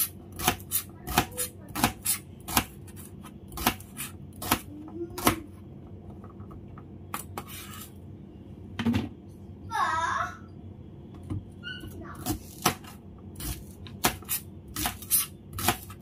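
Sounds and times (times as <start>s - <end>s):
knife chopping celery on metal board: 0.0s - 5.5s, 12.2s - 16.0s.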